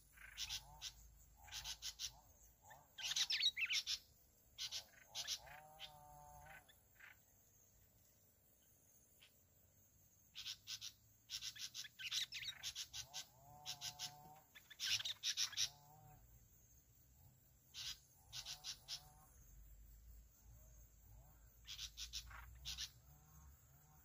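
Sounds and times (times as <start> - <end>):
bulbuls chirping: 0.0 - 7.2, 10.4 - 15.9, 17.7 - 19.2, 21.6 - 23.0.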